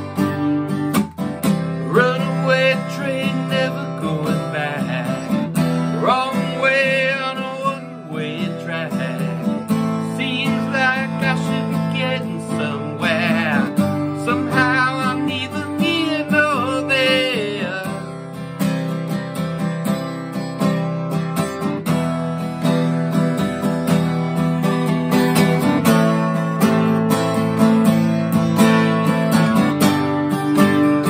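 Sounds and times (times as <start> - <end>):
acoustic guitar strumming: 0.0 - 31.0
man singing: 1.6 - 18.2, 25.9 - 27.0.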